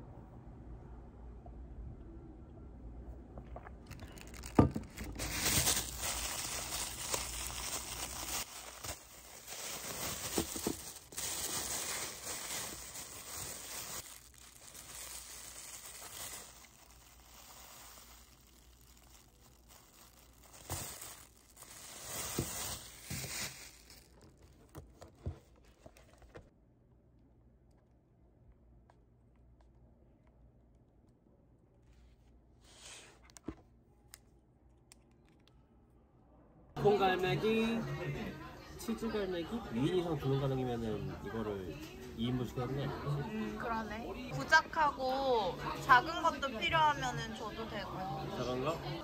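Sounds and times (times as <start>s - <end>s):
plastic bag crinkling: 3.5s - 26.5s.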